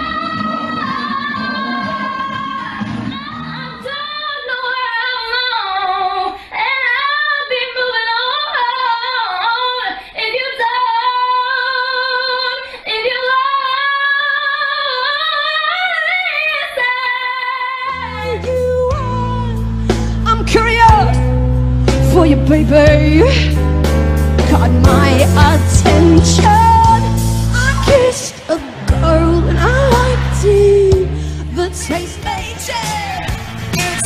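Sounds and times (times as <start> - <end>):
backing band with deep bass: 17.9 - 34.0.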